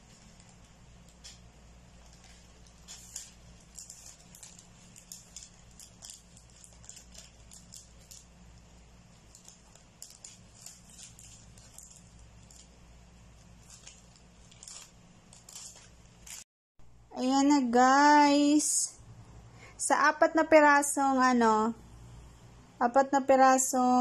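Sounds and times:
wrapper crinkling: 0.0 - 16.4.

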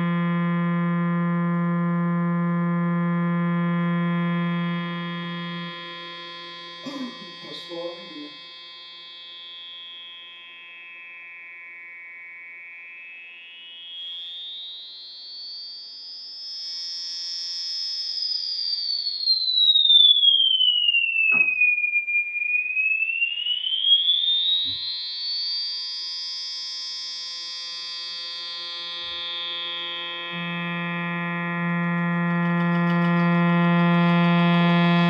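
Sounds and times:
steady low synth tones: 0.0 - 8.5, 28.8 - 35.0
high whistling synth tone gliding: 4.2 - 35.0.

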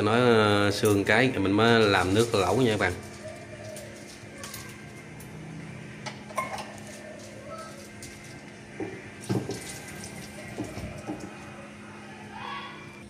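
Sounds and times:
steady low hum: 0.0 - 13.0
knocks and clinks: 6.0 - 11.3
water running and splashing: 9.2 - 11.6.

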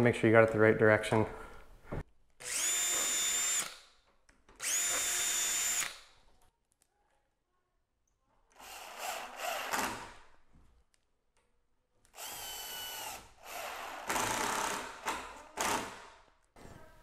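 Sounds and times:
cordless drill driving screws: 2.4 - 3.9, 4.6 - 6.1, 12.1 - 16.0.

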